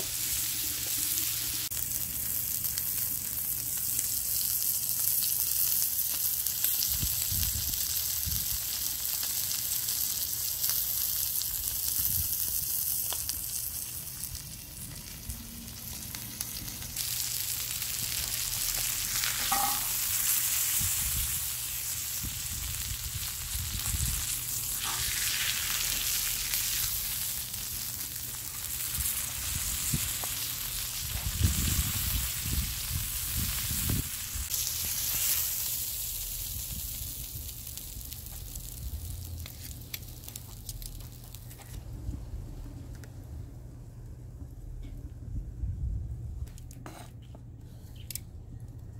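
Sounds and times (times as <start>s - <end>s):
steak sizzling on griddle: 0.0s - 41.4s
metal tongs scraping griddle: 24.8s - 25.1s.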